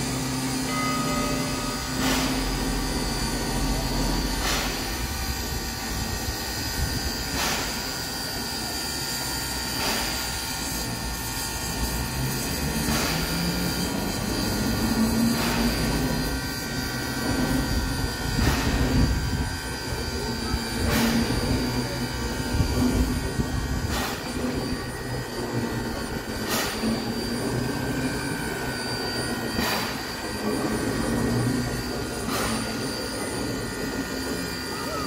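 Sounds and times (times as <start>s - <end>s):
high whine: 0.0s - 7.3s
steam locomotive mechanical drone: 0.0s - 35.0s.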